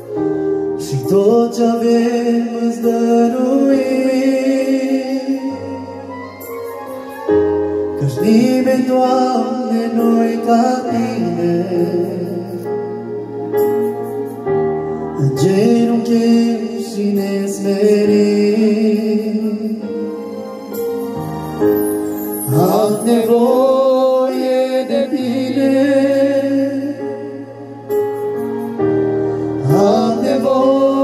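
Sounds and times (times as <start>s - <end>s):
man singing into microphone: 0.8s - 6.5s, 7.5s - 13.2s, 15.1s - 20.2s, 22.4s - 28.1s, 29.6s - 31.0s.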